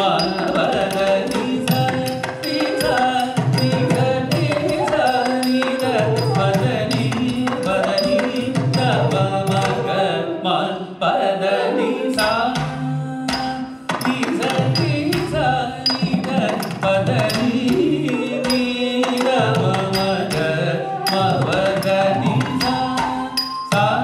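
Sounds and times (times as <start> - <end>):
drum strokes: 0.0 - 10.1
person singing syllables: 0.0 - 10.7, 17.5 - 24.0
flute melody: 2.3 - 10.6, 17.8 - 24.0.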